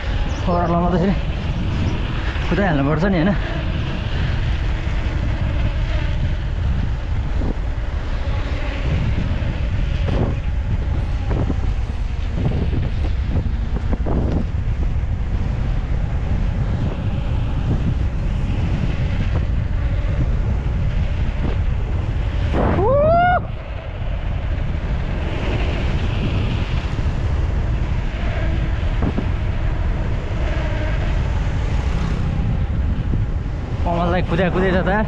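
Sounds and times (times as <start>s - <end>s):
wind buffeting microphone: 0.0s - 35.0s
short rising cry: 22.5s - 23.7s.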